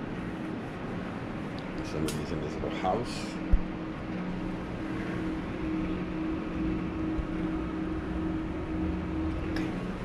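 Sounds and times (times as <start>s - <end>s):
appliance humming with faint hiss: 0.0s - 10.0s.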